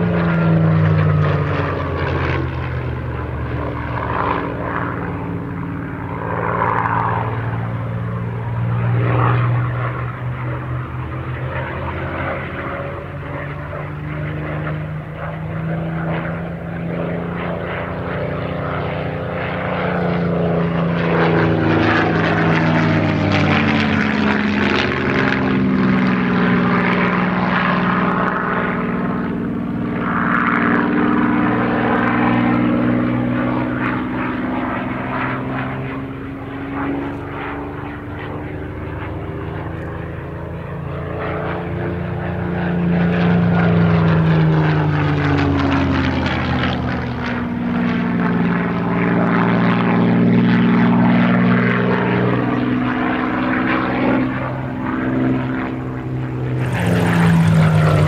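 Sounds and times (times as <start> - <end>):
propeller plane engine overhead: 0.0 - 58.0.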